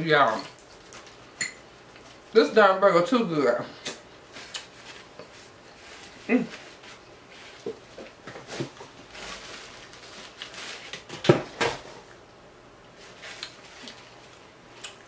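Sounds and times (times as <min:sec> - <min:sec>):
paper napkin rustling: 0:04.2 - 0:11.2.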